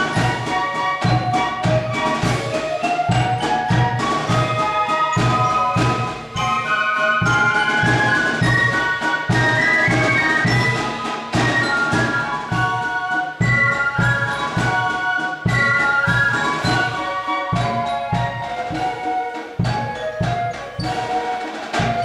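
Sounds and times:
flutes playing melody: 0.0 - 22.0
steady drum beat: 0.0 - 22.0.

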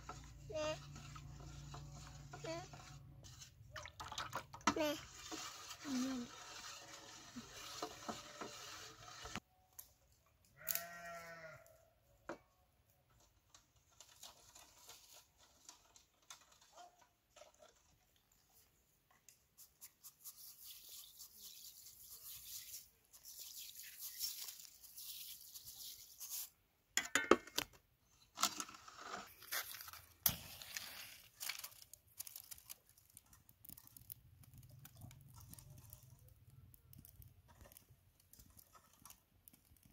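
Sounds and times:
farm animal bleating: 10.6 - 11.9
dry twigs crackling in fire: 28.6 - 39.9.

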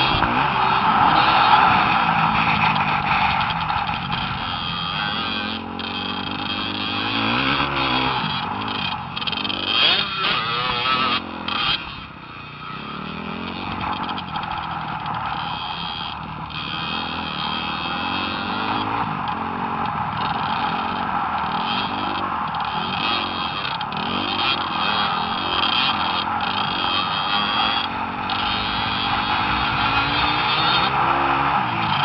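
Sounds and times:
dirt bike engines revving: 0.0 - 32.0.

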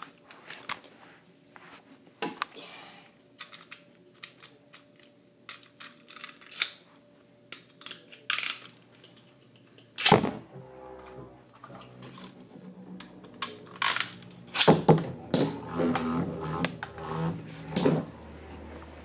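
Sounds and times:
spinning top whirring: 11.5 - 19.0.

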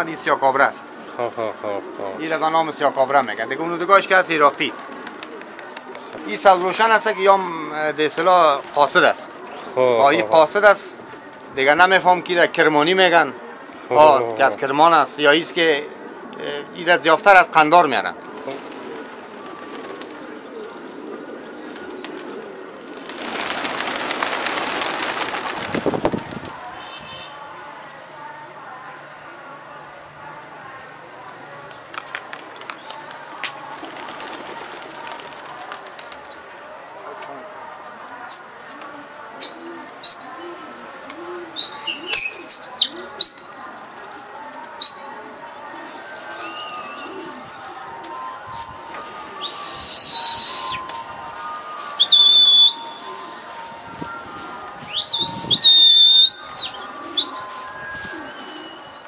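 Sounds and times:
pigeons cooing: 0.0 - 10.3, 14.6 - 17.4, 18.1 - 26.5, 38.3 - 47.7
flock flapping wings: 21.8 - 26.6.

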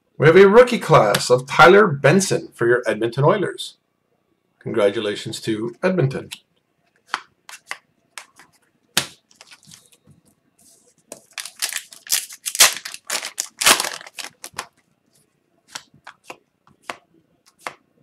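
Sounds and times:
wrapper tearing and crinkling: 9.3 - 9.8, 11.2 - 14.8.

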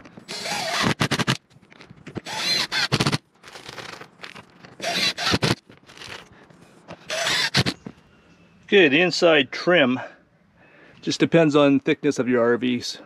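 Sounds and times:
impact driver driving screws: 0.0 - 1.4, 2.0 - 6.3, 6.9 - 7.9.

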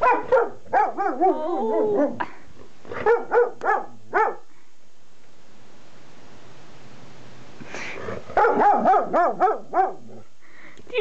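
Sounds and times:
dog barking: 0.0 - 1.4, 2.9 - 4.5, 8.3 - 10.2.

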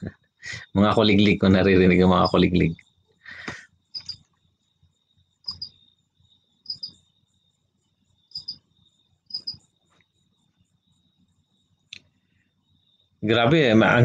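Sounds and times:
crickets chirping: 0.0 - 14.0.

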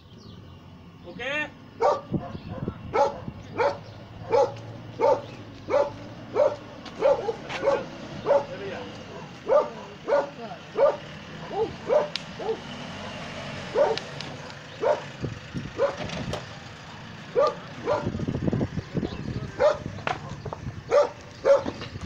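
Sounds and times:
dog barking: 1.8 - 15.1, 15.8 - 16.1, 17.3 - 18.2, 19.6 - 21.8.

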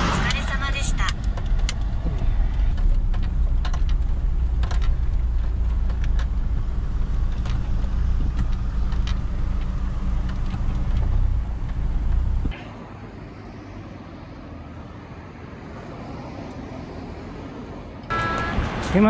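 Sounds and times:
engine and road rumble in cabin: 0.0 - 15.1.

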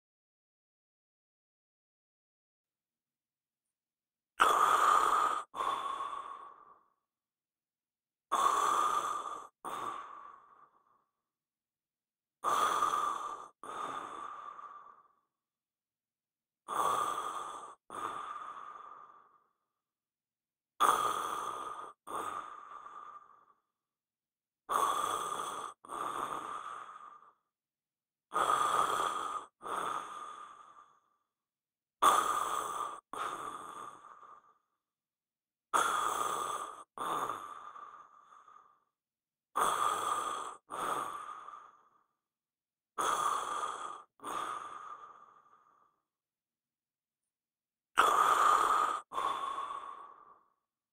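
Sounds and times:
man snoring: 48.0 - 50.2.

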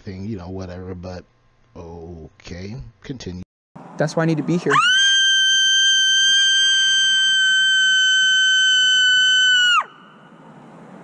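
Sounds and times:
woman screaming: 4.7 - 10.0.

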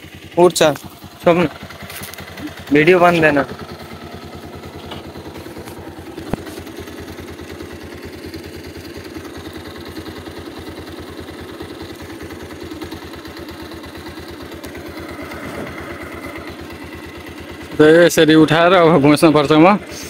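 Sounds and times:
motorcycle engine idling: 0.0 - 20.0.

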